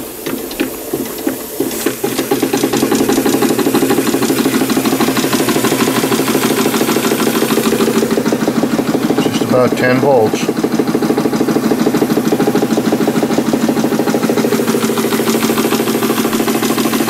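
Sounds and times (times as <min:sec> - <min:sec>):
steam engine chuffing and clattering: 0:00.0 - 0:17.0.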